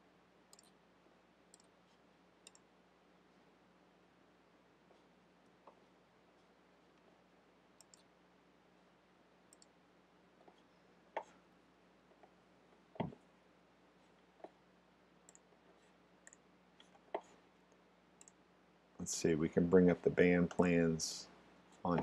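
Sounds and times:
faint steady hum: 0.0 - 22.0
computer mouse clicks: 0.5 - 0.8, 1.5 - 1.8, 2.4 - 2.7, 7.8 - 8.1, 9.5 - 9.8, 15.3 - 15.5, 16.2 - 17.3, 18.2 - 18.4.

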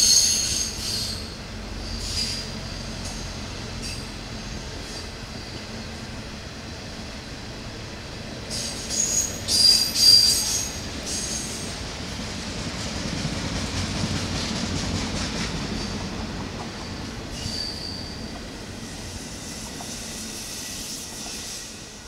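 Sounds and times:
high wheel squeals: 0.0 - 5.9, 8.5 - 11.7, 15.7 - 21.9
train wheels clattering on rails: 0.0 - 6.0, 8.4 - 22.0.

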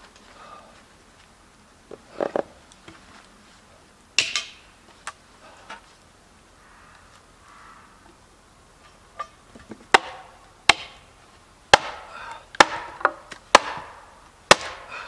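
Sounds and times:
hatchet knocking against log: 12.6 - 13.9.

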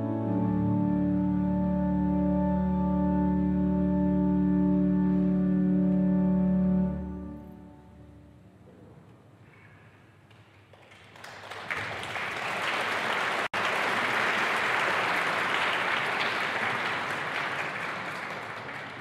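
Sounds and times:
audience applauding: 10.5 - 19.0.

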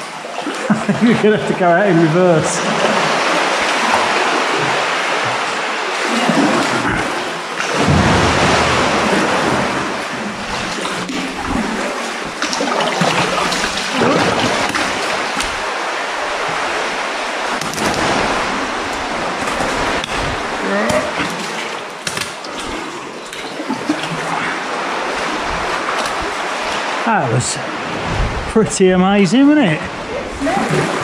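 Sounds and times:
water sloshing against rock: 2.0 - 27.1
paddle strokes in water: 2.6 - 27.1.

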